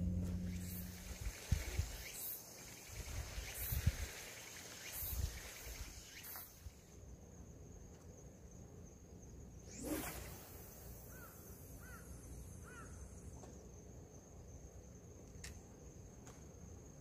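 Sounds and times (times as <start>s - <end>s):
soft low thumps: 0.0s - 1.6s
insect chirping: 0.0s - 17.0s.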